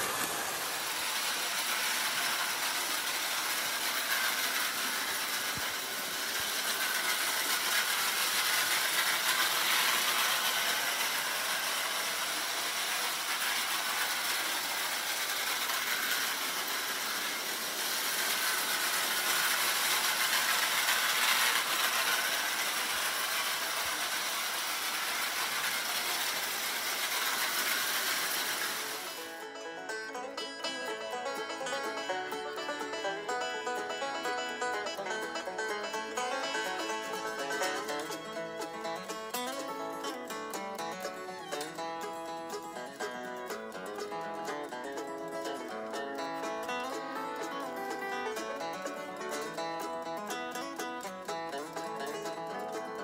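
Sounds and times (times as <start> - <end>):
banjo music: 0.0 - 53.0
toy train clattering on track: 0.0 - 53.0.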